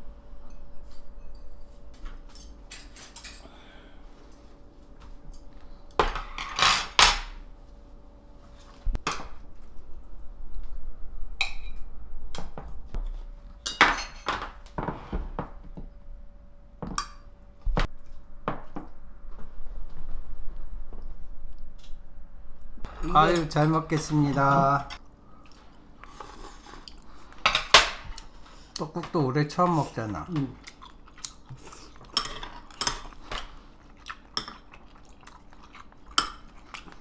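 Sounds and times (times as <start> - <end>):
faint hum: 0.0 - 37.0
tableware clinking: 0.4 - 3.4, 13.6 - 14.6.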